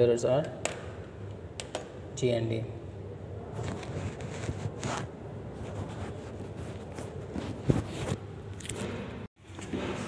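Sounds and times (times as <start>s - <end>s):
steady background noise: 0.0s - 10.0s
hands rustling and scraping wires: 3.5s - 9.7s.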